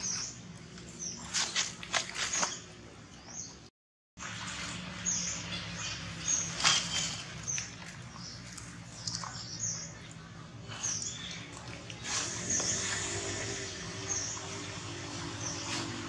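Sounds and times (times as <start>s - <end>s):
rustle: 4.2s - 9.2s.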